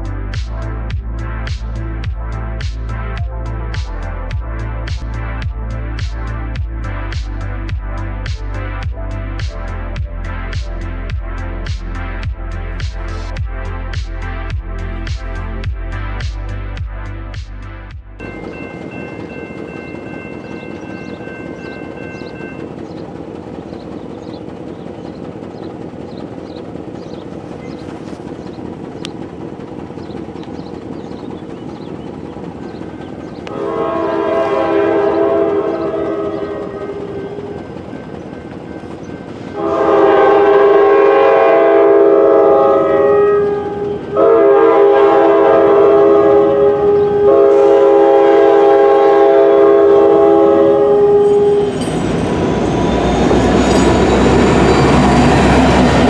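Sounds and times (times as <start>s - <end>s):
train rumble: 0.0s - 56.0s
locomotive air horn: 33.4s - 37.8s, 39.5s - 52.4s.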